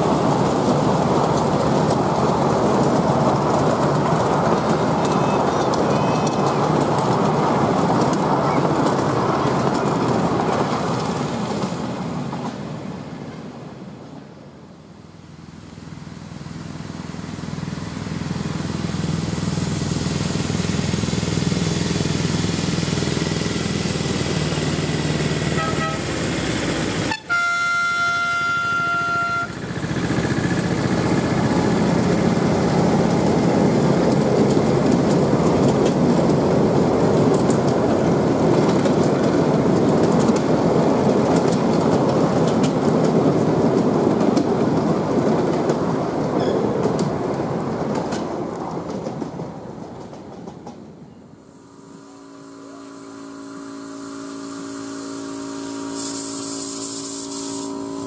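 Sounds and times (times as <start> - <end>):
wheels clicking over rail joints: 0.0 - 12.7, 17.5 - 51.2
train carriages rumbling past: 0.0 - 58.0
steam locomotive whistle: 25.4 - 26.2, 27.0 - 29.6, 51.6 - 58.0
diesel locomotive horn: 25.4 - 26.3, 27.0 - 29.7, 51.6 - 58.0.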